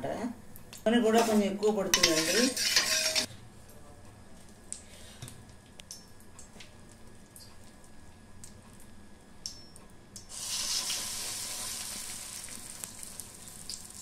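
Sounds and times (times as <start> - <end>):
batter sizzling on hot pan: 10.2 - 14.0.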